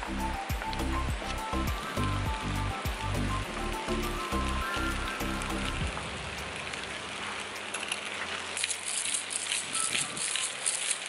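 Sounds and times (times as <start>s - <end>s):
pasta sizzling in frying pan: 3.9s - 11.0s.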